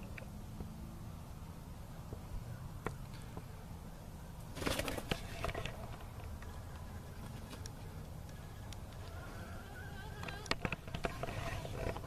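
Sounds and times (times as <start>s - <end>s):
rooster flapping wings: 4.5s - 5.9s.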